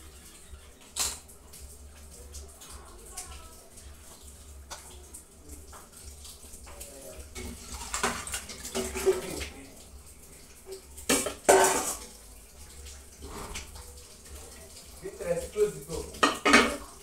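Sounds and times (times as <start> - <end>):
liquid pouring: 0.0 - 17.0
metal bowl and pot clanking: 0.8 - 1.3, 11.0 - 12.1, 16.1 - 17.0.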